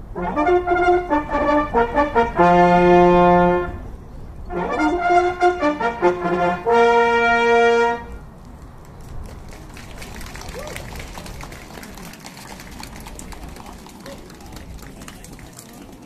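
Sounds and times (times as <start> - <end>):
brass band playing a fanfare: 0.0 - 3.8, 4.5 - 8.2.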